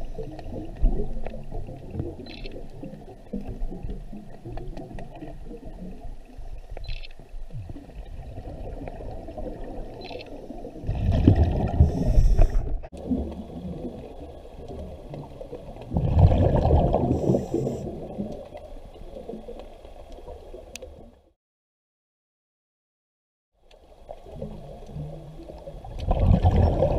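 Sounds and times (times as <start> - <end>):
low underwater rumble: 0.0 - 21.3, 24.0 - 26.9
diver exhaling bubbles: 10.8 - 14.1, 15.8 - 18.3, 26.0 - 26.9.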